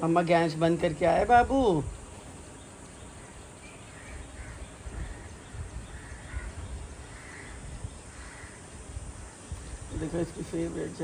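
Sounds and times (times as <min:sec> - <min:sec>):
crows cawing: 0:03.2 - 0:09.9.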